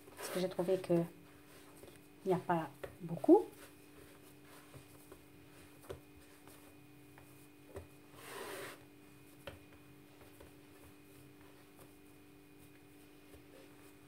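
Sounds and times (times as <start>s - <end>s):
faint steady hum: 0.0s - 14.0s
hands rubbing dough: 0.0s - 14.0s
soft taps on dough: 4.1s - 8.0s.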